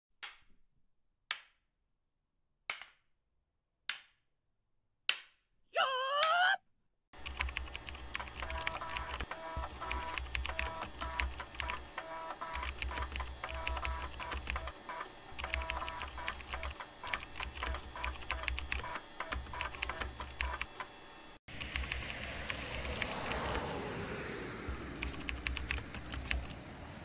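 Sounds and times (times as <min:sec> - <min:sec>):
keyboard typing: 0:07.2 - 0:20.9, 0:21.5 - 0:23.7, 0:24.7 - 0:26.6.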